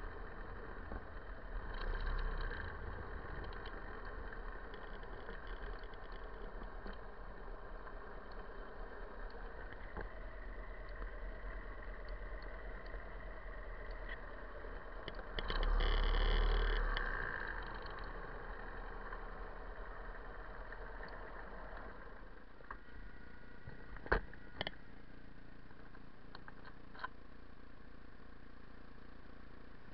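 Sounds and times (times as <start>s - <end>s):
motorcycle engine at low revs: 0.0s - 29.9s.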